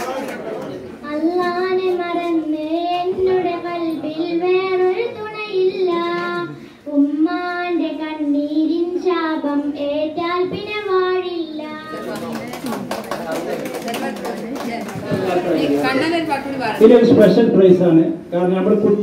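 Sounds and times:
girl singing into a microphone: 1.0 - 12.2.

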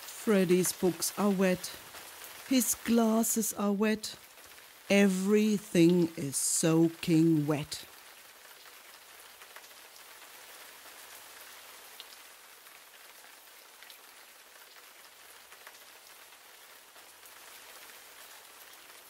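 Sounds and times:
raindrop ticks: 0.0 - 10.3
steady rain hiss: 0.0 - 19.0.

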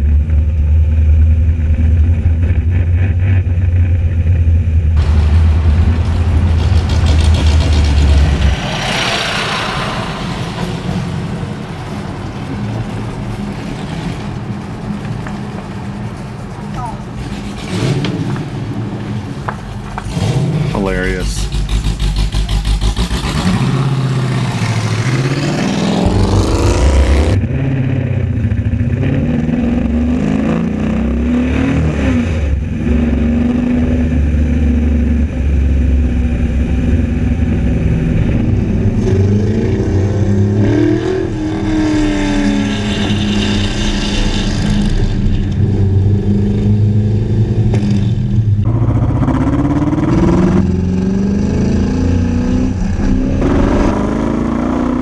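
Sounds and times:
race car engine accelerating: 20.0 - 55.0.

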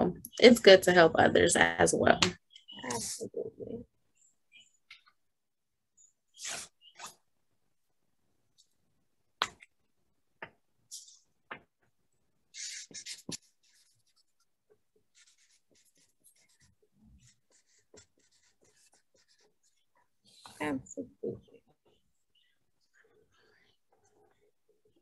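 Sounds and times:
pen scratching on paper: 12.5 - 20.1.

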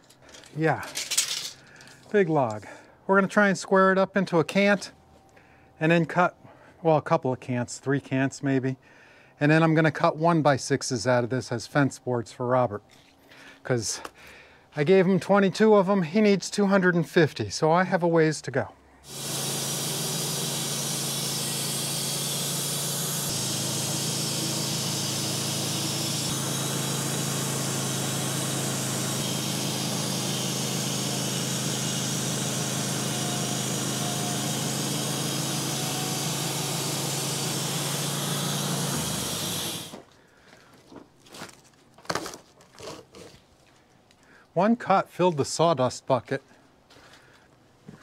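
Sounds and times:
sawmill blade cutting log: 19.0 - 40.0
sawmill drone: 19.0 - 40.0.

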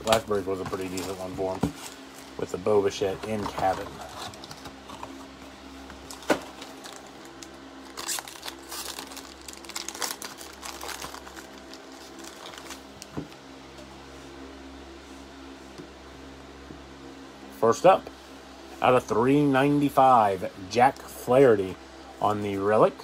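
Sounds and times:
steady low hum: 0.0 - 23.0
foil wrapper crinkling and tearing: 6.0 - 13.2.

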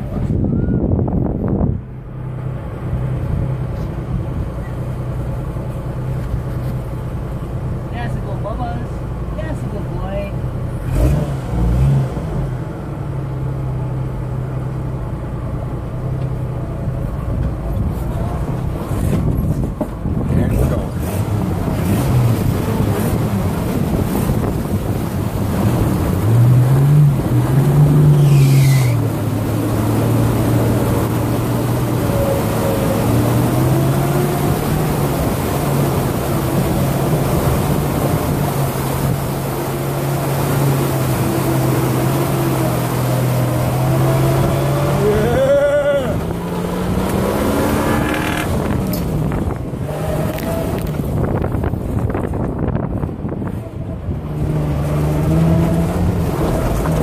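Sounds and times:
car engine pulling under load: 10.4 - 57.0
water rushing and splashing: 16.0 - 57.0.

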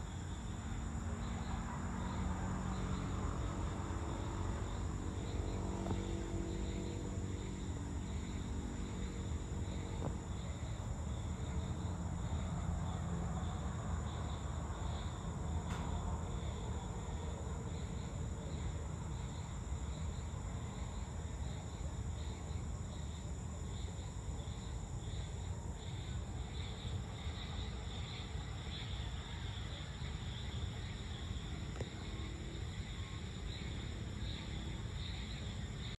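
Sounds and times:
insects chirring: 0.0 - 36.0
faint click: 15.7 - 15.9.

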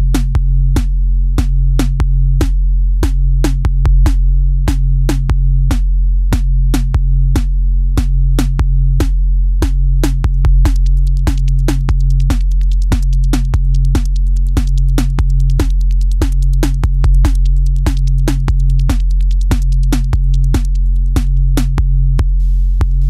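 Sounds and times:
drum machine beat: 0.0 - 23.0
low bass: 0.0 - 23.0
hi-hat ticks: 6.4 - 23.0.

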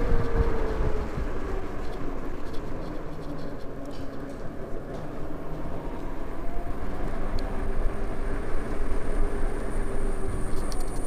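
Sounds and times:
faint steady whine: 0.0 - 11.0
wind and road noise: 0.0 - 11.0.

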